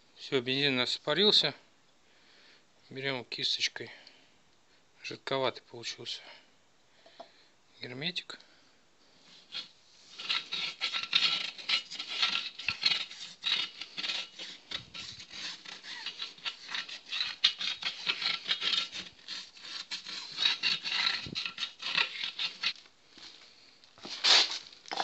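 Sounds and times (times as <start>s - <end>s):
paintbrush scrubbing on wheel rim: 9.3s - 22.8s.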